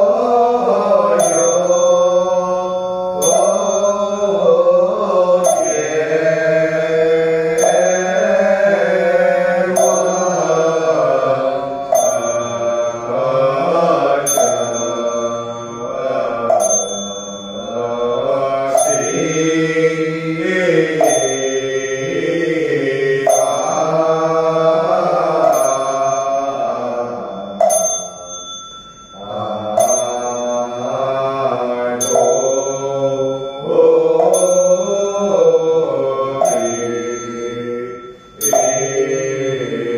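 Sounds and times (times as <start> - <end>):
voices chanting in sustained notes: 0.0 - 39.9
sharp struck wooden beat: 9.6 - 19.8, 23.0 - 31.4.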